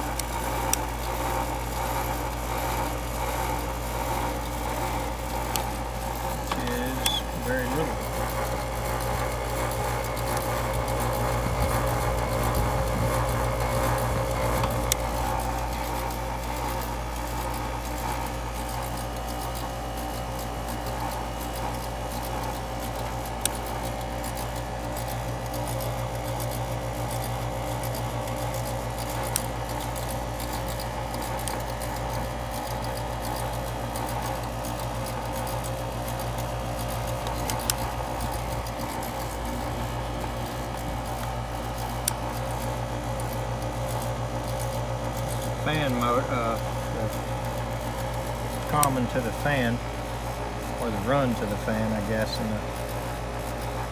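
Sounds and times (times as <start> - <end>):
air conditioner humming: 0.0 - 53.9
sharp clicks: 6.4 - 7.9.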